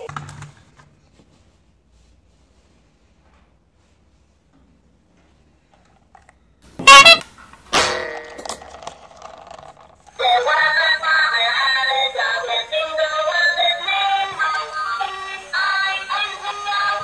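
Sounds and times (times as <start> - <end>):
sharp clack: 6.8 - 9.0.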